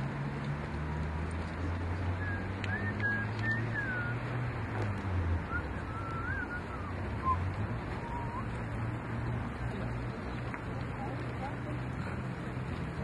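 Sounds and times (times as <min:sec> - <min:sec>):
faint short whistles: 0:02.2 - 0:04.2, 0:05.5 - 0:07.4, 0:08.0 - 0:08.5.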